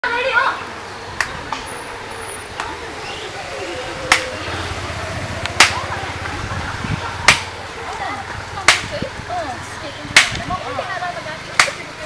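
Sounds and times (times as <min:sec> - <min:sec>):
blade chopping into tree trunk: 0:10.2 - 0:10.4.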